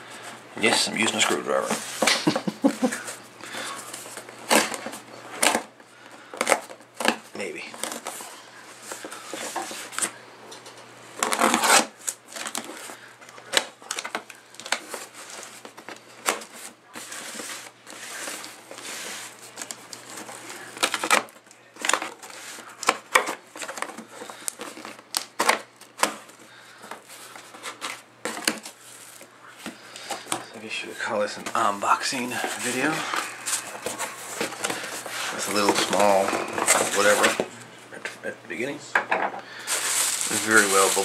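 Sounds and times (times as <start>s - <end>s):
packing tape tearing: 3.6s - 5.7s, 11.2s - 29.3s, 32.4s - 37.4s, 39.6s - 41.0s
cardboard flaps rustling: 31.2s - 37.6s, 39.7s - 41.0s.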